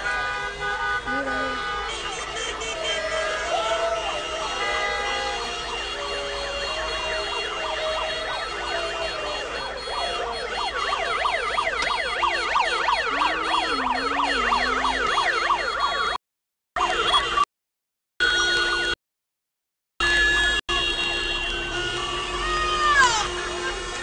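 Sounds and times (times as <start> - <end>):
siren wailing: 2.6 - 16.2.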